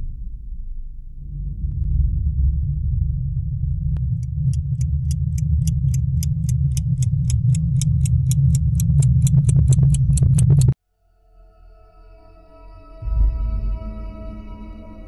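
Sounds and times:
loud low drone: 0.0 - 10.8
clock ticking: 4.0 - 10.8.

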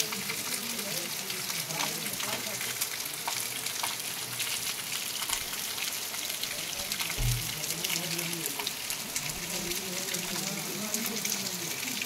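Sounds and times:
steady rain on trees: 0.0 - 12.0
brief low thump: 7.2 - 7.5.

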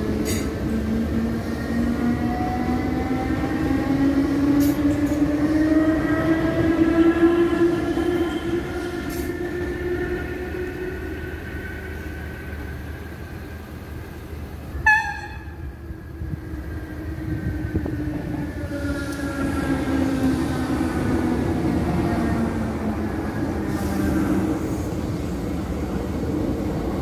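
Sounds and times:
train horn toot: 14.8 - 15.6.

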